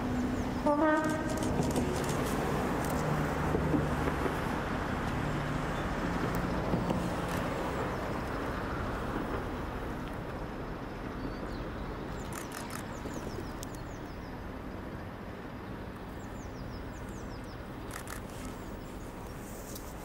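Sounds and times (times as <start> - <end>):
train rumbling on rails: 0.0 - 20.0
small birds chirping: 11.2 - 14.3.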